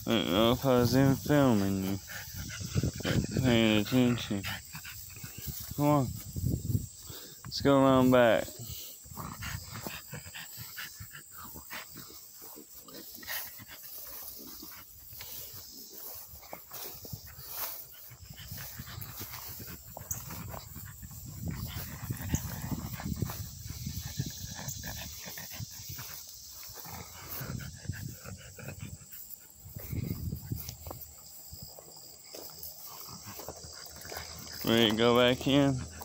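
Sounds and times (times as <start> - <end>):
dog breathing and snuffling: 0.0 - 36.0.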